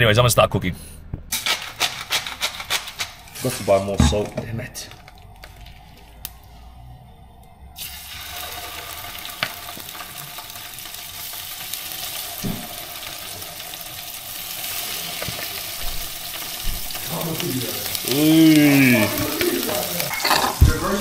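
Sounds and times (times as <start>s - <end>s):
fish sizzling in frying pan: 7.8s - 21.0s.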